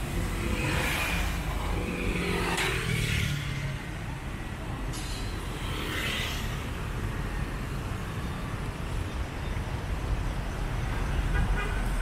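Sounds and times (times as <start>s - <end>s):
motor scooters passing: 0.0s - 4.2s
rumble of engines and tyres: 0.0s - 12.0s.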